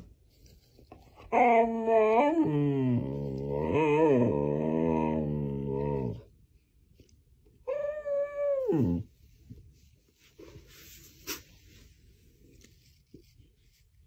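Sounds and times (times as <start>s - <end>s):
dog whining call: 7.6s - 9.1s
faint rustling: 9.1s - 14.0s.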